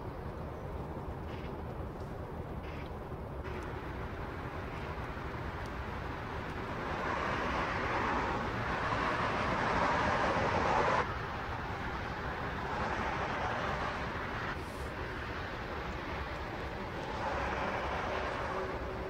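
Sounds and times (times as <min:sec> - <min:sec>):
ship engine rumble: 0:00.0 - 0:19.0.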